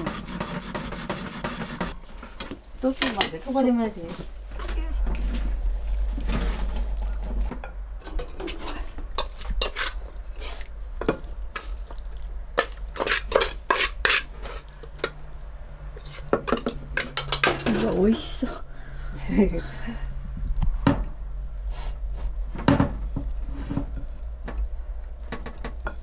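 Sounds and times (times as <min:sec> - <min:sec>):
wooden utensils scraping a pan: 0:00.0 - 0:02.0, 0:02.8 - 0:11.8, 0:12.6 - 0:14.7, 0:16.0 - 0:18.6.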